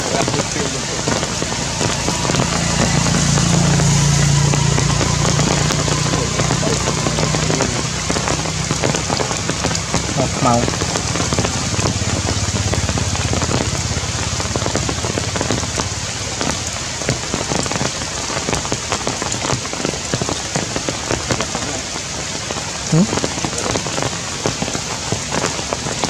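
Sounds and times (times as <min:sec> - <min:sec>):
heavy rain on leaves: 0:00.0 - 0:26.0.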